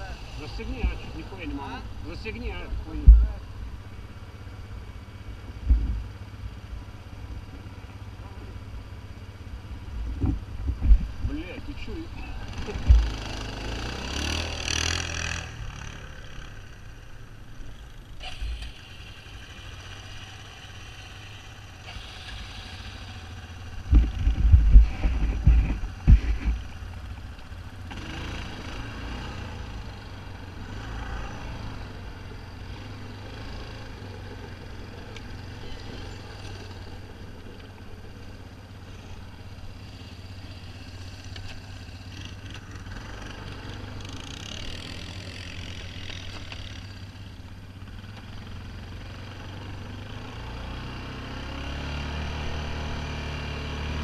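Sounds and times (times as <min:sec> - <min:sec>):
atv engine idling: 0:15.7 - 0:30.6, 0:31.4 - 0:50.7.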